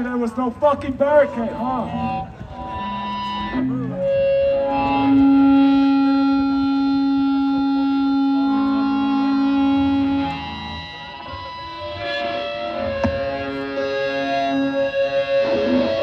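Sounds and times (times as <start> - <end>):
electric guitar feedback ringing: 1.0 - 16.0.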